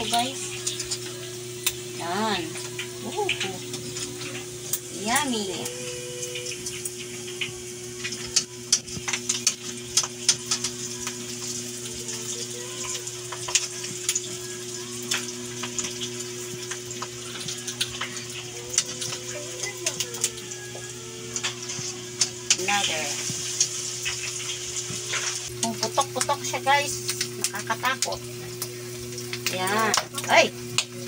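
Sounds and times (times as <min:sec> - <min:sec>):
meat sizzling in oil: 0:00.0 - 0:31.0
oil crackling and popping: 0:00.0 - 0:31.0.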